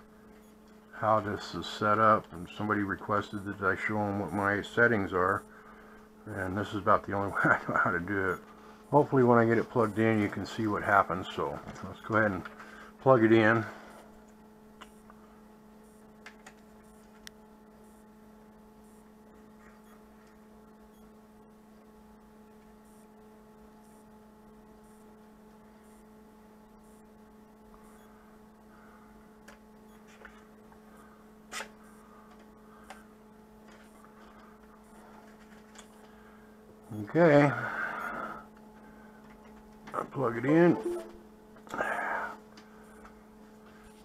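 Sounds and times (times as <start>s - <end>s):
electrical hum: 0.0s - 44.0s
faint clicks and rustles: 33.6s - 36.2s.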